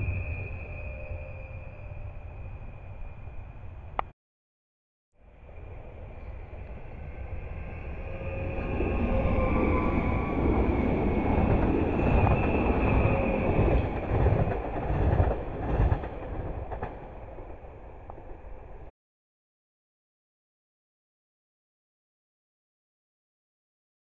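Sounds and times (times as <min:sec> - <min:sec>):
thin high whine: 0:00.0 - 0:03.9
train wheels rumbling: 0:05.5 - 0:18.9.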